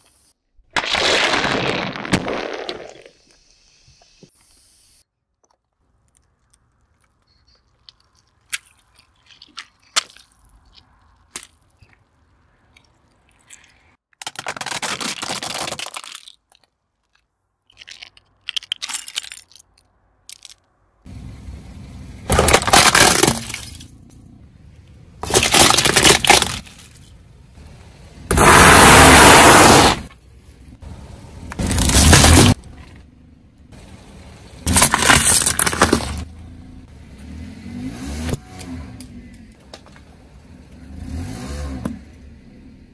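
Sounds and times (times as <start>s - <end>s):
bottle bursting under car tyre: 0.7s - 3.5s, 22.3s - 23.9s, 28.3s - 30.1s, 31.6s - 32.6s, 34.6s - 36.3s
plastic crackling: 25.2s - 27.1s.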